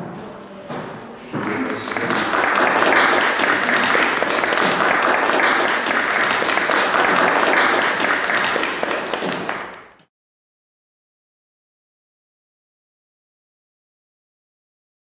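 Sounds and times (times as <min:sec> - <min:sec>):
audience applauding: 0:01.3 - 0:10.1.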